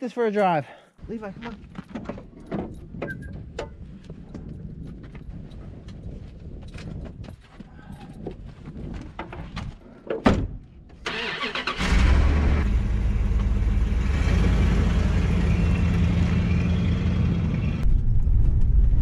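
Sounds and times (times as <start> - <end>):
engine cranking and running: 11.1 - 15.4.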